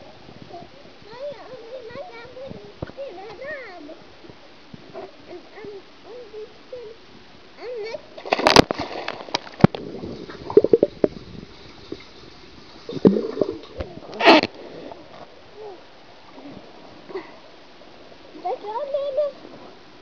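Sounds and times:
underwater bubbling and gurgling: 8.0 - 18.3
water lapping: 8.0 - 19.9
water splash: 8.2 - 14.9.

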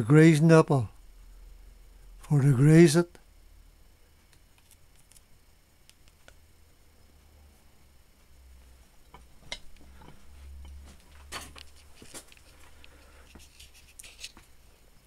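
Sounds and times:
low steady rumble: 0.0 - 15.0
handling clicks and rustles: 9.1 - 14.6.

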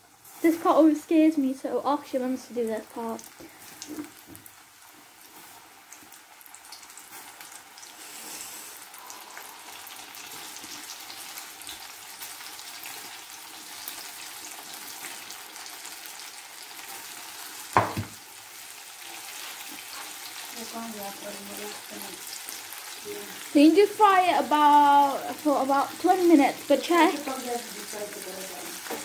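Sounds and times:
chicken sizzling in hot oil: 0.0 - 29.0
sudden loud knock: 17.8 - 18.2.

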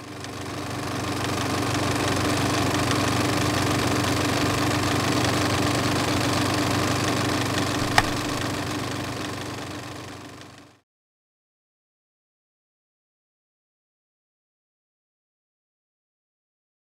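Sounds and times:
film projector whirring: 0.2 - 10.6
sharp click: 7.8 - 8.4.

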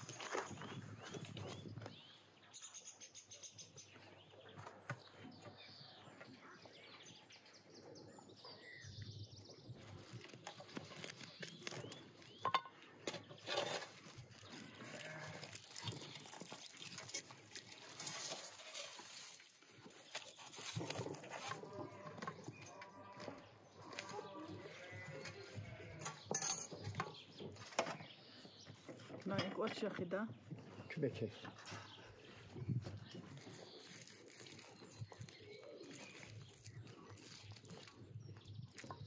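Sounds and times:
sheep bleating: 14.6 - 15.5, 24.1 - 26.1.

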